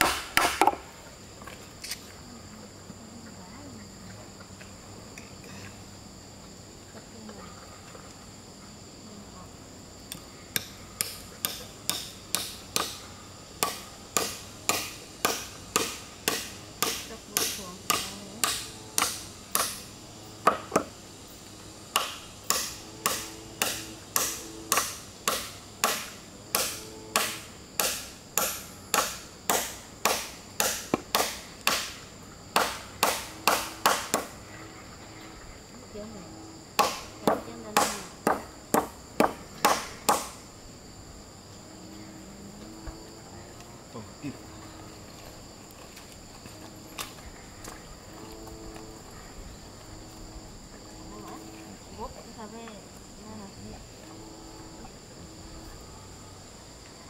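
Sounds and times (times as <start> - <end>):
hand tool striking wooden board: 0.0 - 0.8, 10.6 - 13.0, 13.6 - 21.0, 21.9 - 34.3, 36.8 - 40.4
high insect drone: 0.0 - 57.0.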